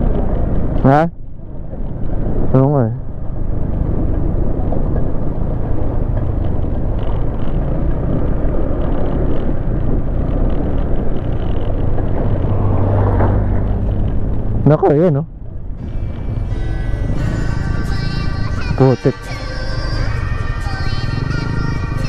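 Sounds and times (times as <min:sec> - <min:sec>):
road noise rumble: 0:00.0 - 0:22.0
scooter engine running: 0:03.1 - 0:22.0.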